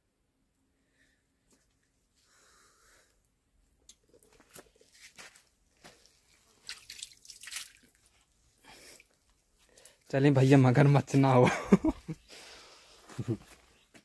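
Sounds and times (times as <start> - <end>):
hand splashing in water: 6.6 - 8.0.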